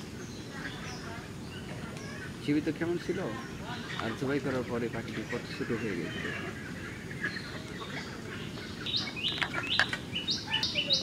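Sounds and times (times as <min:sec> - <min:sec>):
small birds chirping: 0:00.0 - 0:11.0
sharp high bird calls: 0:08.7 - 0:11.0.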